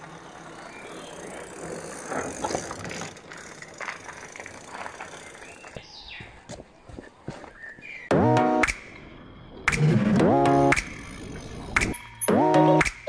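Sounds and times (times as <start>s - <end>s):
bicycle tyre noise on road: 0.0s - 8.1s, 10.8s - 12.1s.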